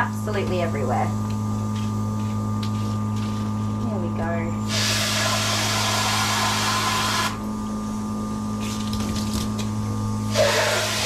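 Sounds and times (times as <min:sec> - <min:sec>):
steady motor hum: 0:00.0 - 0:11.0
water spraying from nozzle: 0:10.4 - 0:11.0.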